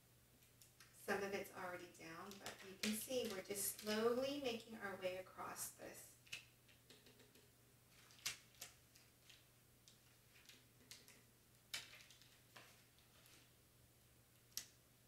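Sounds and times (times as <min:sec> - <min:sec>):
transfer tape crinkling: 0:02.0 - 0:04.2, 0:07.9 - 0:13.6.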